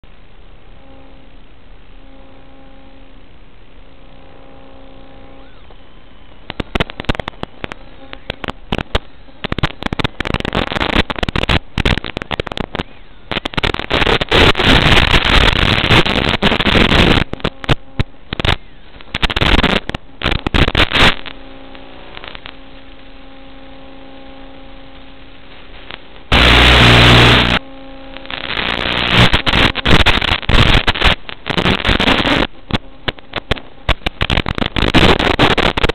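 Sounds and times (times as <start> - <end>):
crackling radio static: 0.0 - 35.9
steady hum: 0.0 - 35.9
faint tones: 0.5 - 35.5
loud hiss: 6.5 - 32.5.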